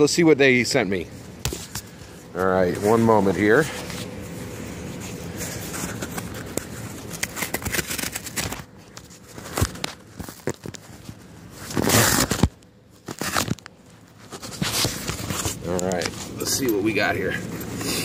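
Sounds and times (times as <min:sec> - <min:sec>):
cardboard scraping and rustling: 0:01.4 - 0:16.4
cardboard ripping: 0:05.8 - 0:08.7, 0:11.6 - 0:13.6.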